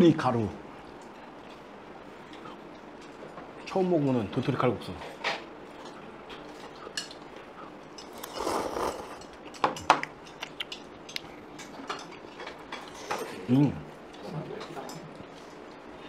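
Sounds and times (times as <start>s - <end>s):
cutlery clinking against dishes: 5.1s - 7.3s, 9.0s - 13.5s.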